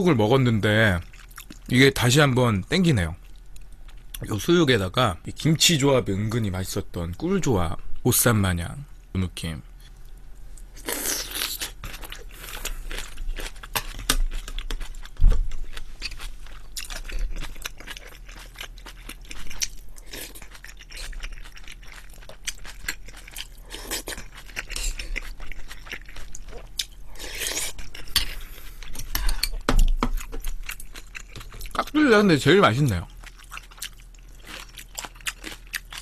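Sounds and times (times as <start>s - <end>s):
wet chewing and crunching: 0.8s - 1.8s, 9.9s - 36.0s.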